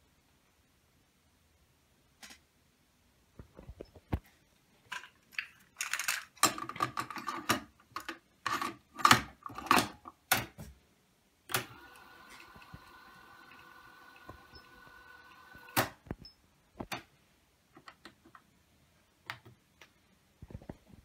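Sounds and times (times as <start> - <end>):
tape transport whirring: 11.5 - 16.2.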